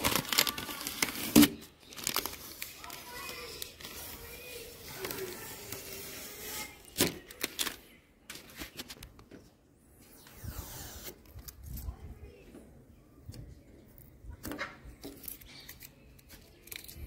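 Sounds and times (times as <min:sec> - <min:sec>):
plastic film crinkling: 0:00.0 - 0:09.1.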